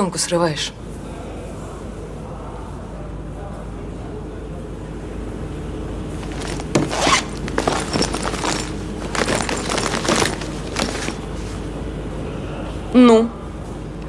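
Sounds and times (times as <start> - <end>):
rustling and clicking handling noise: 6.2 - 11.5.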